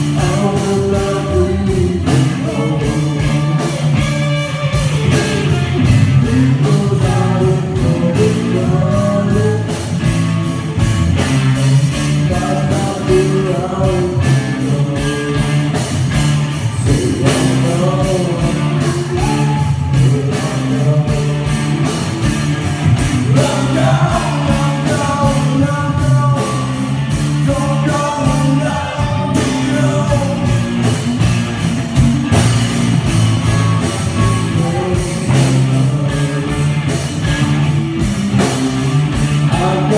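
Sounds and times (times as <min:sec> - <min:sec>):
person singing: 0:00.0 - 0:10.0, 0:11.9 - 0:15.9, 0:16.7 - 0:22.1, 0:23.2 - 0:31.1, 0:33.4 - 0:37.6, 0:39.2 - 0:39.9
bass guitar: 0:00.0 - 0:39.9
distorted electric guitar: 0:00.0 - 0:39.9
drum kit beat: 0:00.0 - 0:39.9.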